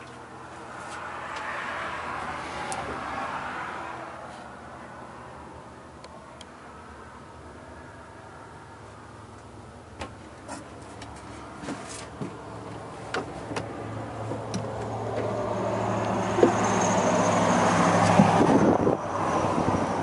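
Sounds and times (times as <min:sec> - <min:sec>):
engine humming: 0:04.7 - 0:20.0
footsteps and knocks on boat: 0:10.0 - 0:15.3, 0:16.3 - 0:16.7.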